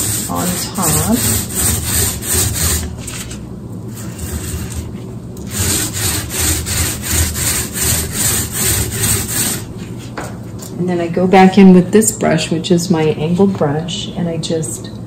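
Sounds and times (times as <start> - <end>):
paint roller rolling: 0.0 - 10.1.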